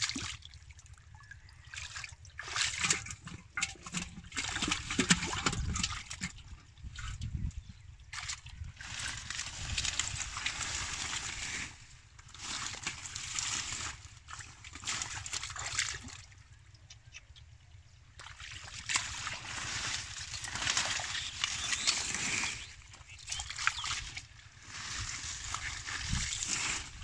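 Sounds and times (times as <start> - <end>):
splashing and squelching in mud: 0.0 - 27.0.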